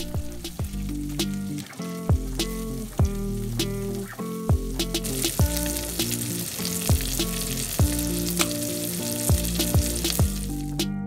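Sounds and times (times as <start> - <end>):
deep drum beat: 0.0 - 1.4, 2.1 - 3.8, 4.5 - 6.1, 6.9 - 8.5, 9.3 - 10.5
music with sustained chords: 0.0 - 11.0
fish cakes sizzling in oil: 0.3 - 10.7.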